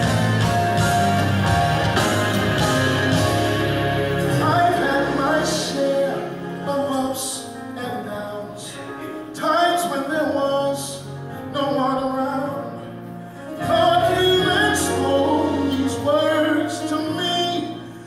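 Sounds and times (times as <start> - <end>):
praise team singing: 0.0 - 7.4, 13.6 - 17.9.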